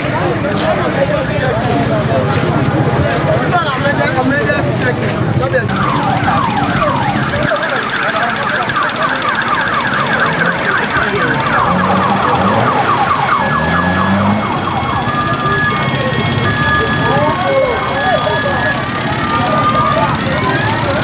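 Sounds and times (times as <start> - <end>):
electronic siren wailing: 5.6 - 21.0.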